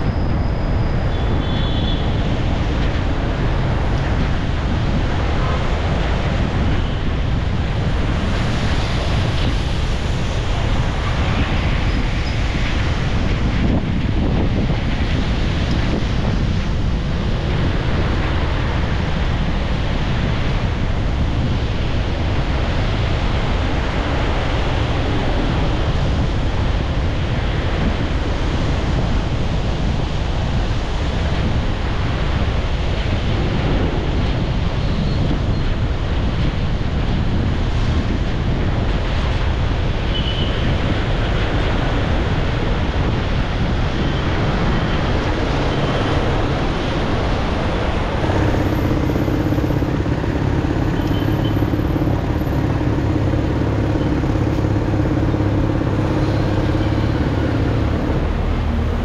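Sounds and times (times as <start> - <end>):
road and wind noise: 0.0 - 59.0
low engine hum: 43.0 - 59.0.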